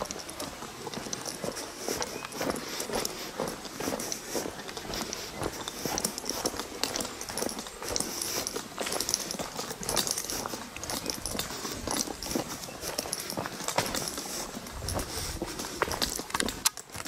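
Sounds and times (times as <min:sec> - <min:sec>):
footsteps on gravel path: 0:00.0 - 0:17.0.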